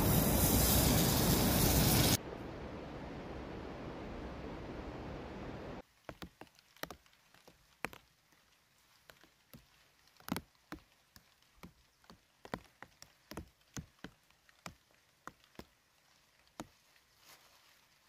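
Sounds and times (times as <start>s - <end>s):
sharp knocks and snaps: 9.0s - 15.8s.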